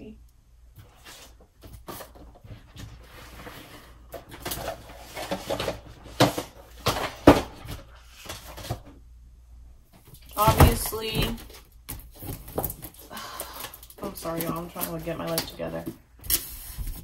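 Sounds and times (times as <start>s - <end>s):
objects knocking and thumping: 1.5s - 9.0s, 10.0s - 13.1s.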